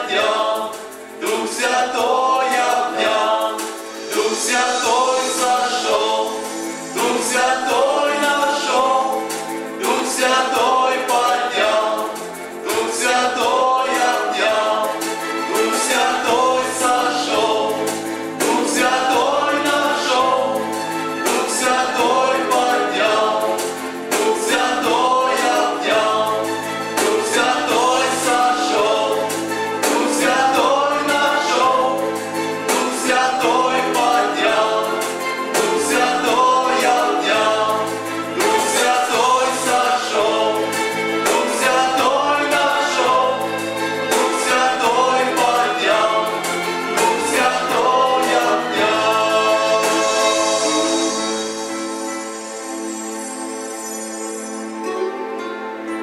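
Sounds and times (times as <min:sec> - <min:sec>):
male vocal quartet singing hymn: 0:00.0 - 0:52.0.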